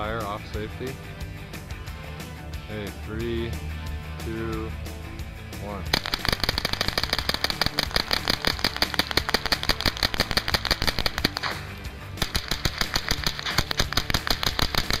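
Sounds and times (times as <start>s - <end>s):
music: 0.0s - 15.0s
rapid rifle gunfire: 5.9s - 15.0s.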